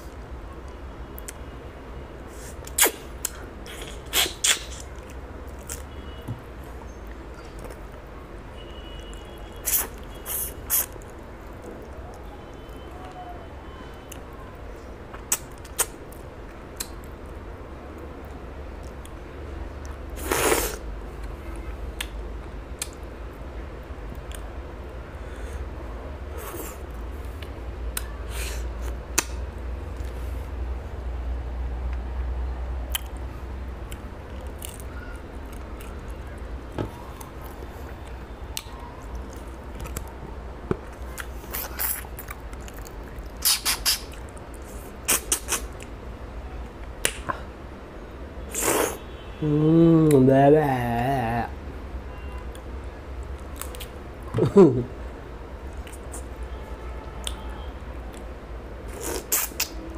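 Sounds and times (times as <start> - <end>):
mouth eating noises: 2.4 - 5.9, 9.6 - 12.3, 15.1 - 17.2, 19.8 - 21.4, 32.9 - 40.2, 40.8 - 46.0, 48.5 - 49.0, 55.7 - 56.4, 58.9 - 59.9
wet chewing and smacking: 15.1 - 17.2, 32.9 - 46.0.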